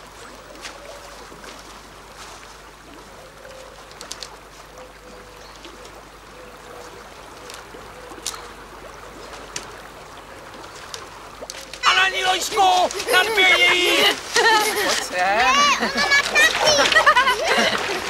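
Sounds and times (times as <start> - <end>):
plants rustling and twigs snapping: 3.8 - 4.7, 7.4 - 8.6, 10.5 - 12.0, 12.7 - 13.2
outdoor hiss: 11.2 - 18.0.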